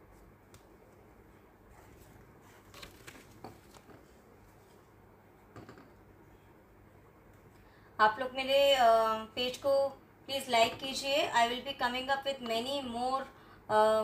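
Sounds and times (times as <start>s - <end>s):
faint taps and rustles: 1.7s - 6.0s.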